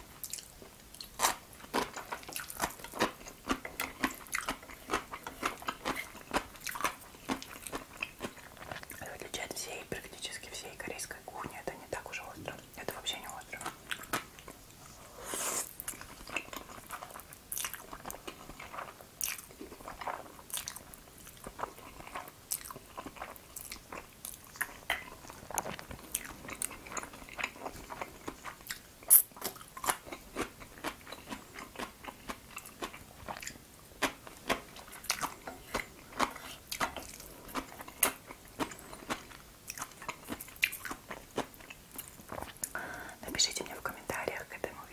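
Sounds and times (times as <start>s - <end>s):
wet chewing with mouth clicks: 0.1s - 9.3s, 13.2s - 43.1s
slurping noodles: 15.1s - 15.7s.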